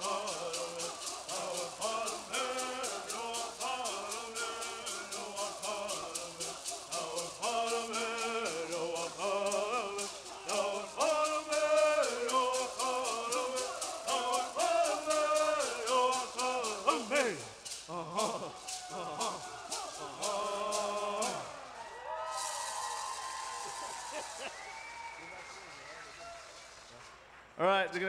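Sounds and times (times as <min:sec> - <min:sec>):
men singing together: 0:00.0 - 0:21.8
gourd rattles shaken: 0:00.0 - 0:24.6.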